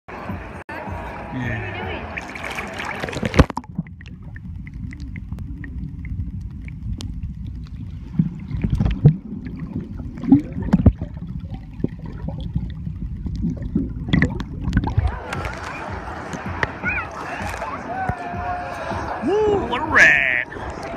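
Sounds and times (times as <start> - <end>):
water splash: 2.1 - 17.8
underwater rumble with gurgles: 2.2 - 17.6.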